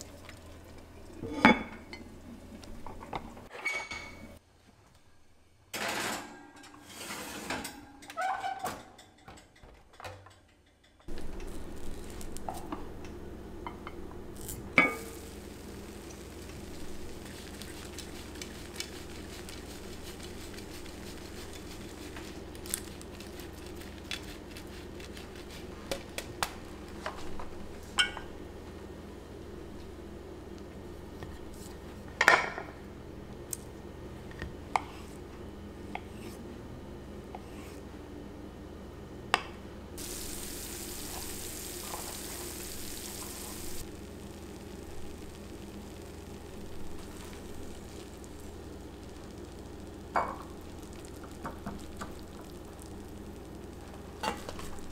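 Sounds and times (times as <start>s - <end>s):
food sizzling in pan: 11.1s - 25.6s, 40.0s - 54.9s
steady low hum: 11.1s - 54.9s.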